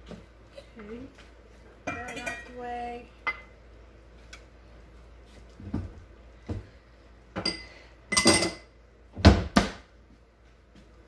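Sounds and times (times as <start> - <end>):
pots and pans clinking: 1.9 - 2.6, 7.4 - 8.7.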